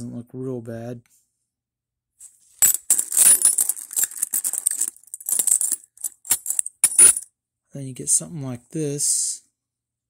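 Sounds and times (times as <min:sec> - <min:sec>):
metal coins clinking: 0:02.6 - 0:07.2.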